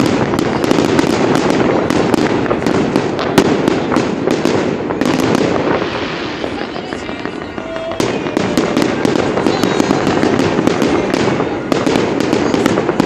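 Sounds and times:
fireworks crackling: 0.0 - 13.0
fireworks launching and bursting: 0.0 - 13.0
sharp firework bangs: 0.0 - 13.0.

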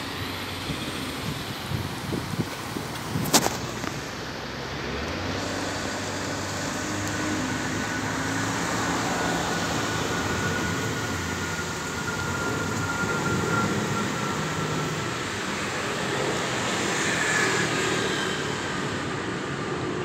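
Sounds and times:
jet engines roaring overhead: 0.0 - 20.0
high whine falling in pitch: 7.3 - 19.3.

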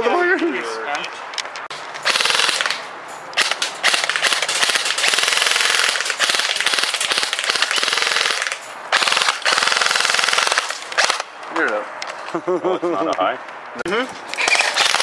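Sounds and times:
airsoft rifle firing full auto: 2.1 - 2.8, 3.4 - 11.2, 14.5 - 15.0.

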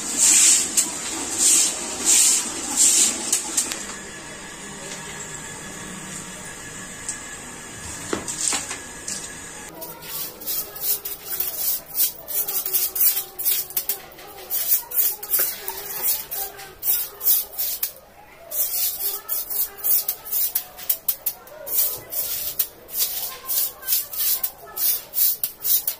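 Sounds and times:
stick broom scrubbing wet tiles: 0.0 - 3.9, 9.7 - 25.9.

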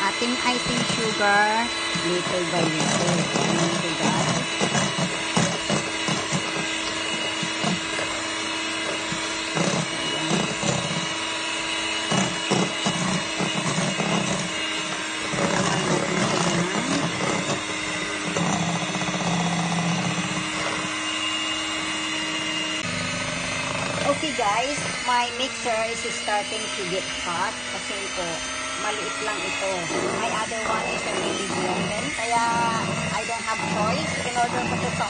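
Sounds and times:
beaters rumbling in bowl: 0.0 - 35.0
electric hand mixer running: 0.0 - 35.0.

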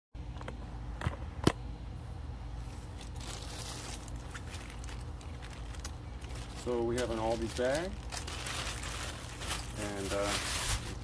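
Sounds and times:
low background hum: 0.2 - 11.0
plastic bag rustling: 2.7 - 11.0.

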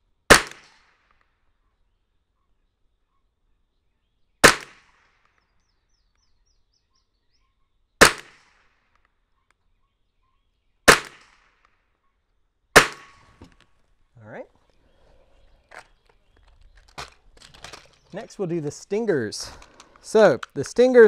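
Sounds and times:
rifle shots: 0.3 - 1.1, 4.4 - 5.3, 8.0 - 8.8, 10.9 - 11.7, 12.8 - 13.4.

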